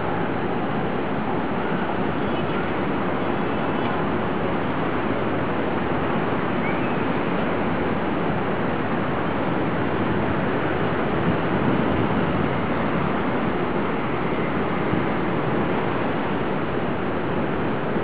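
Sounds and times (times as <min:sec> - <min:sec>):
distant city traffic: 0:00.0 - 0:18.0.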